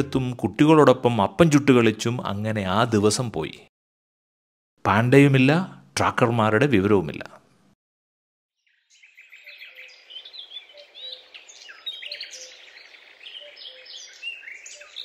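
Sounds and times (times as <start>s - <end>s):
small birds chirping and trilling: 8.6s - 15.0s.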